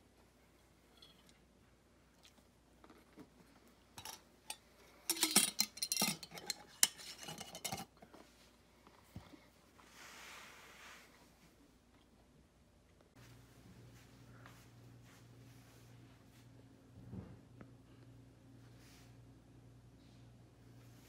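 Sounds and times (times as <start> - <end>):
jar and lid clinking: 5.1 - 7.9
soft hiss: 8.2 - 16.8.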